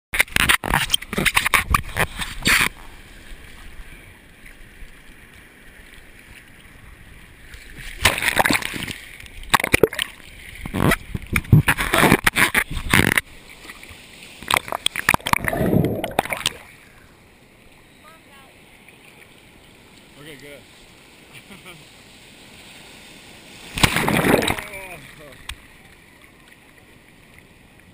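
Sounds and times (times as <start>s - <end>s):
water splashing against camera: 0.2s - 6.8s, 7.4s - 16.9s, 23.5s - 27.9s.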